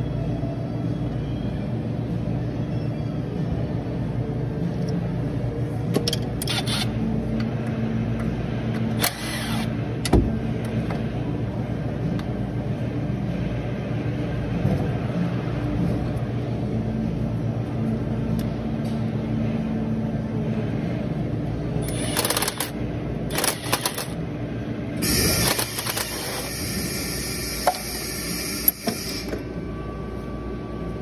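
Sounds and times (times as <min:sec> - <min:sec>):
cordless power tool running: 0:09.0 - 0:09.7, 0:25.0 - 0:29.4.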